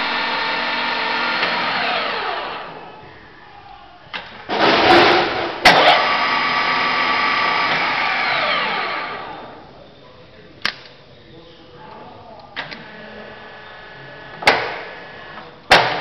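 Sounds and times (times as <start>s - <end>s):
drilling machine whine: 0.0s - 2.8s, 5.7s - 9.6s
clicks: 10.6s - 11.0s.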